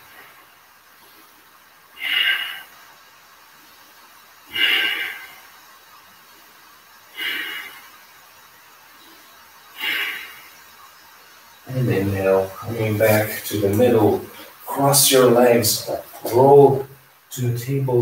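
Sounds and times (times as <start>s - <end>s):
man breathing hard: 1.0s - 3.5s, 4.4s - 5.7s, 7.1s - 8.4s, 9.0s - 10.7s.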